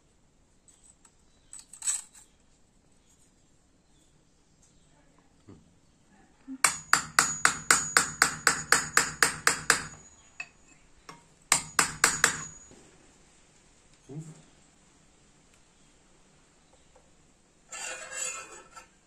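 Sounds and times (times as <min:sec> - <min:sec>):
hammer striking steel: 0:06.6 - 0:10.5, 0:11.1 - 0:12.7.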